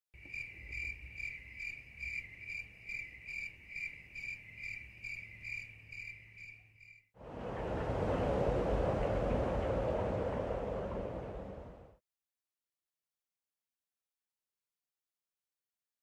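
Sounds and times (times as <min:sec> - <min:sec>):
cricket chirping: 0:00.2 - 0:07.0.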